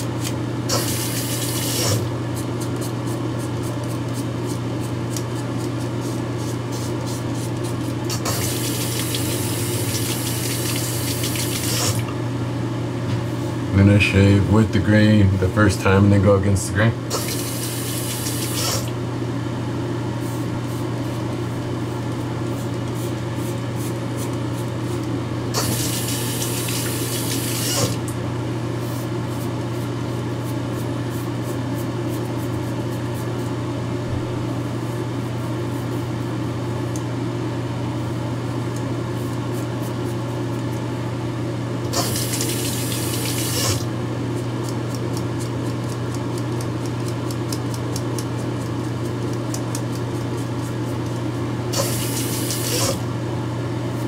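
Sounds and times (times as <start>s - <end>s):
steady low hum: 0.0s - 54.0s
water running from tap: 8.3s - 12.0s, 17.2s - 18.7s, 25.6s - 27.8s, 42.0s - 43.8s, 51.8s - 52.8s.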